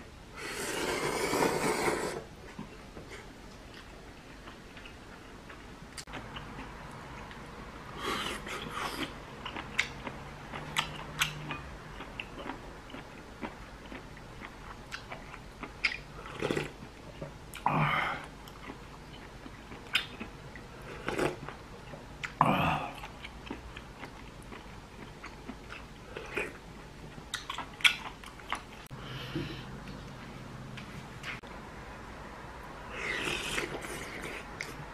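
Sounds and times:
slurping noodles: 0.4 - 2.3, 33.0 - 34.8
person chewing: 0.5 - 7.4, 8.0 - 17.6, 18.2 - 26.6, 27.2 - 30.1, 33.0 - 34.9.

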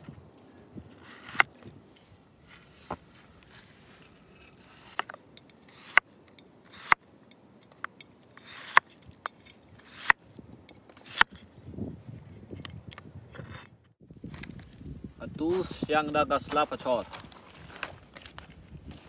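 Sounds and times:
knife slicing cucumber: 6.7 - 7.0.

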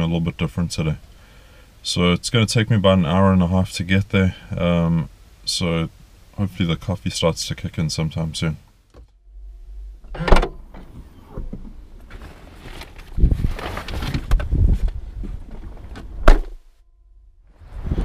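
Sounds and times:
car door banging: 10.0 - 11.8, 16.1 - 16.6
tailgate slamming: 10.0 - 11.8, 16.0 - 16.6
bags rustling and knocking: 12.0 - 16.6.

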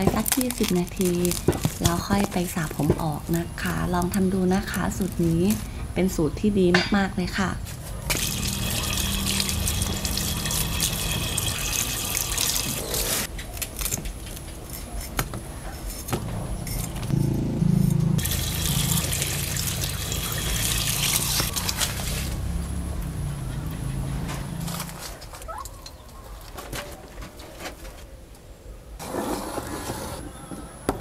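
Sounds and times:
running water splashing: 8.2 - 13.3, 18.2 - 22.2.

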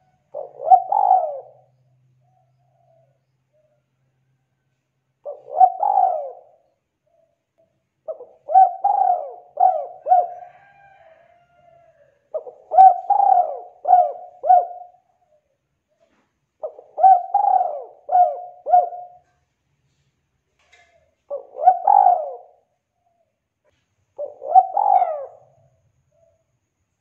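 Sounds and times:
dove cooing: 0.0 - 3.8, 5.2 - 7.4, 8.0 - 11.2, 11.9 - 19.4, 20.8 - 23.3, 24.1 - 26.4.

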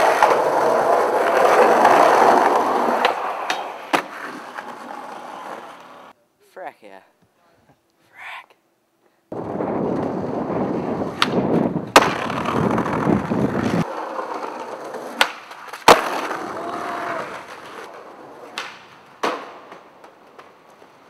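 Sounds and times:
skateboard wheels rolling on concrete: 0.0 - 6.2, 9.3 - 21.0
skateboard deck clacking on ground: 11.2 - 16.6, 17.4 - 21.0.

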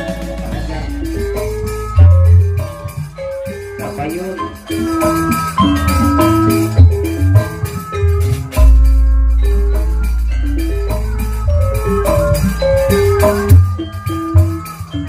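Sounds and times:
drum strokes: 0.0 - 15.0
metallophone notes: 0.0 - 15.0
deep gong stroke ringing: 8.6 - 14.5.

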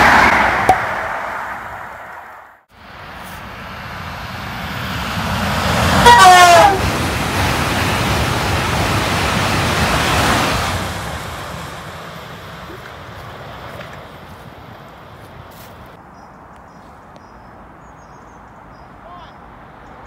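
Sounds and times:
train rushing past: 0.0 - 16.0
train horn blast: 5.9 - 6.9.

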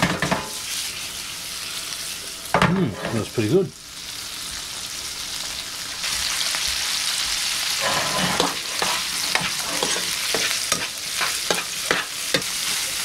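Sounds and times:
food sizzling in hot oil: 0.0 - 13.0
utensil scraping frying pan: 2.8 - 3.4, 7.6 - 13.0.

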